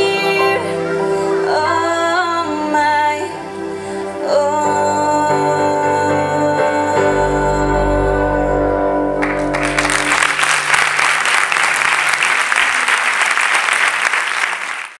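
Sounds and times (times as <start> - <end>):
held keyboard chord: 0.0 - 11.0
audience applause: 9.2 - 15.0.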